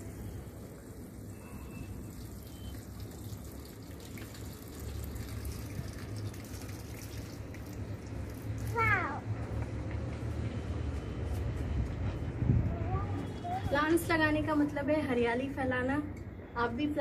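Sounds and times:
water pouring onto soil: 1.8 - 8.8.

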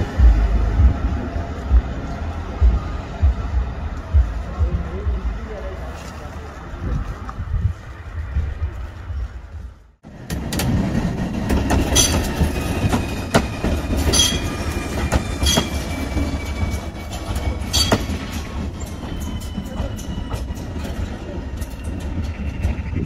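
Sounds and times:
train rumble on rails: 0.0 - 23.0
wheels clicking over track: 10.1 - 23.0.

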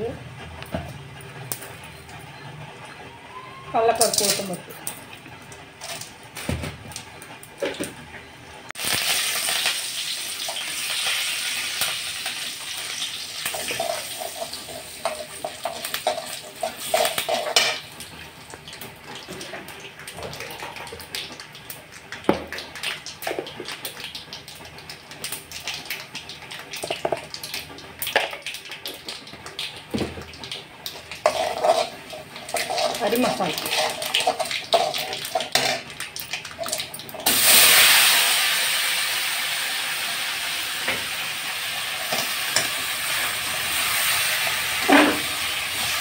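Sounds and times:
hot oil sizzling and spluttering: 8.7 - 46.0
ladle scraping and tapping pan: 31.2 - 35.8.

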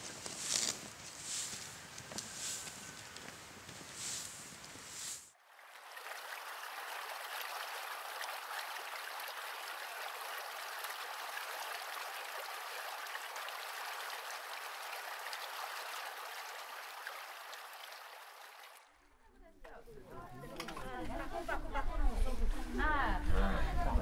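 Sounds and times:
stream flowing over stones: 4.0 - 19.0.

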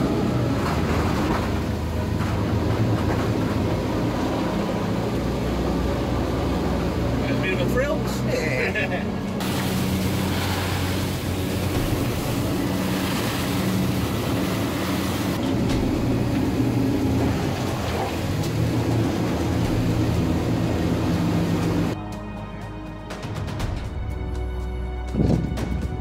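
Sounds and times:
boat engine running: 0.0 - 22.2
water rushing past hull: 9.4 - 22.0.

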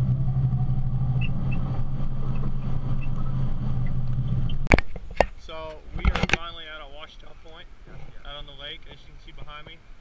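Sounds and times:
engine and drivetrain drone: 0.0 - 4.8.

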